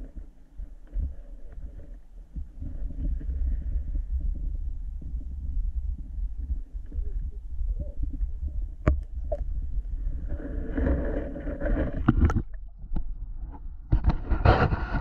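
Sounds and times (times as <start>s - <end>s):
muffled underwater rumble: 0.0s - 15.0s
camera knocking underwater: 8.0s - 15.0s.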